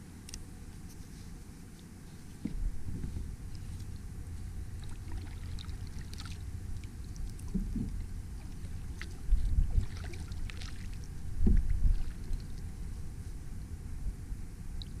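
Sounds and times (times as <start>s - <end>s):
steady low rumble: 0.0s - 15.0s
water splashing and dripping: 4.8s - 12.7s
low thumps: 11.3s - 12.0s.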